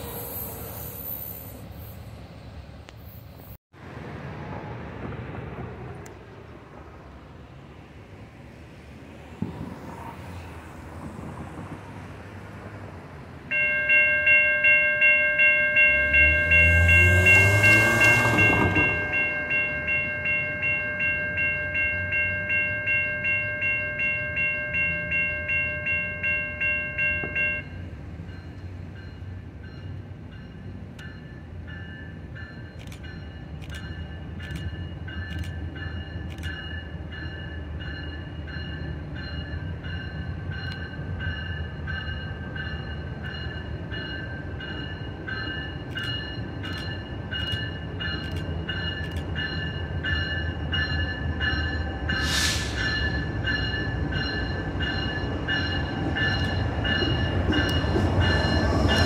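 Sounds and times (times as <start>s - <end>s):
crossing bell ringing: 13.5s - 59.0s
car passing: 15.8s - 20.0s.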